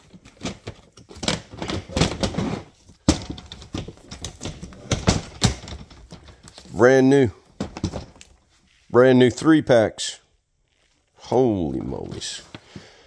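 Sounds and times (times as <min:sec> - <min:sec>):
boxed items clicking and clattering: 0:00.0 - 0:06.8, 0:07.4 - 0:08.5.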